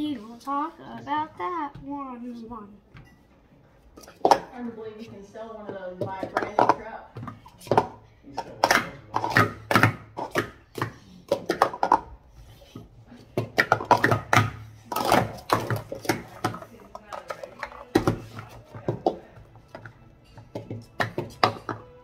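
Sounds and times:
plastic cups clacking: 3.9 - 4.6, 5.6 - 22.0.

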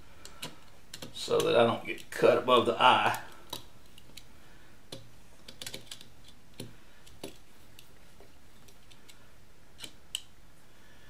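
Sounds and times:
metal driver clicking on screws: 0.2 - 2.2.

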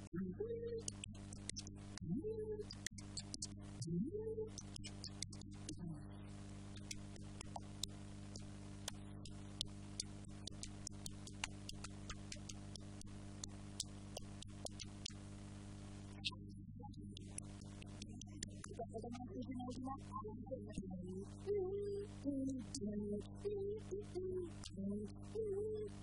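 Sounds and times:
low electrical hum: 0.0 - 26.0
sharp clicks: 6.5 - 15.2.

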